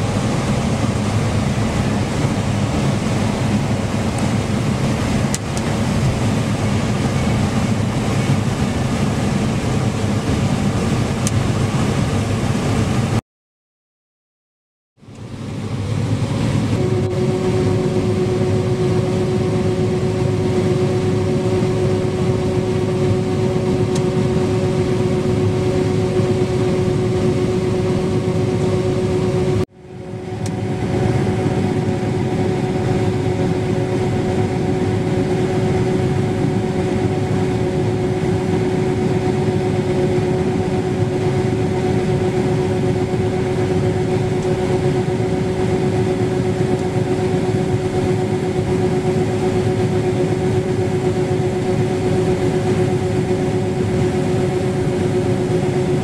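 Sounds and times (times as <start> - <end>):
combine harvester drone: 0.0 - 13.2, 15.0 - 56.0
auger whine: 15.1 - 56.0.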